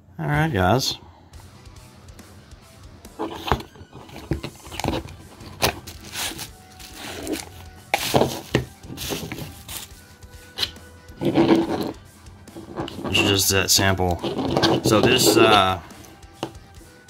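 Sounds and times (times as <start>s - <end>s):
cardboard box opening: 3.2s - 9.9s, 10.6s - 12.0s, 14.1s - 15.8s
bubble wrap crinkling: 3.2s - 12.0s.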